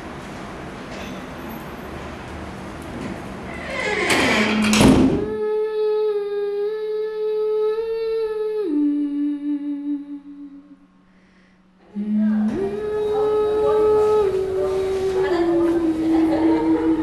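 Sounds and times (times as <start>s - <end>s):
faint low hum: 0.0s - 17.0s
person humming a slow melody: 5.3s - 10.9s, 11.8s - 17.0s.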